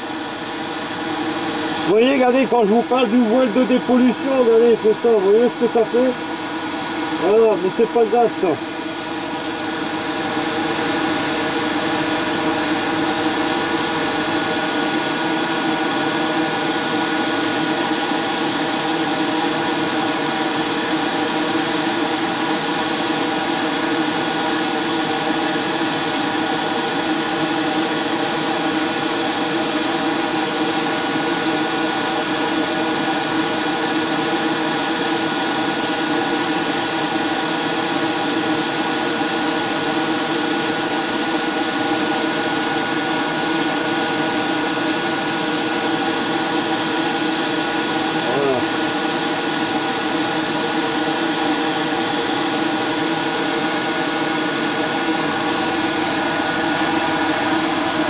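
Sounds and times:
airbrush spraying hiss: 0.0s - 1.9s, 10.1s - 55.3s.

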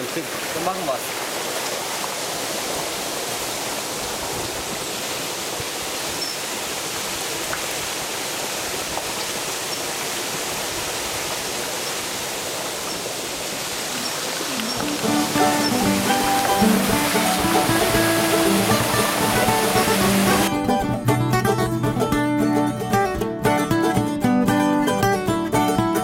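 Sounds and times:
running water rushing: 0.0s - 20.5s
background music: 14.8s - 26.0s.

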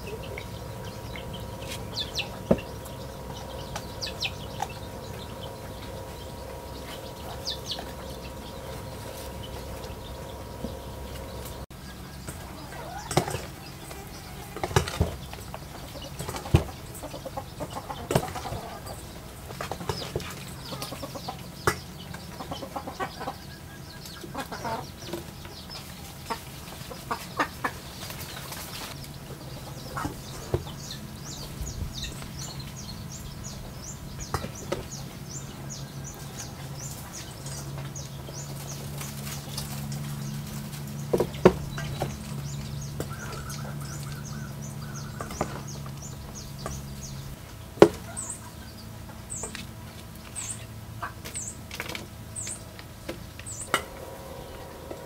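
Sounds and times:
chickens clucking: 0.0s - 55.0s.

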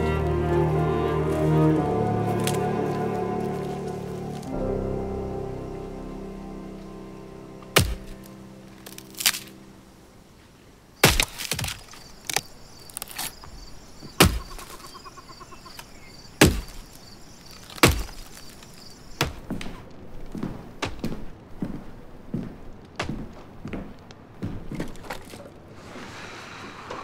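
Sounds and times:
held musical chord: 0.0s - 10.5s
axe splitting firewood: 7.8s - 8.2s, 8.8s - 9.5s, 11.0s - 13.4s, 14.1s - 14.6s, 16.4s - 16.9s, 17.5s - 18.6s
faint high chirping: 11.8s - 19.2s.

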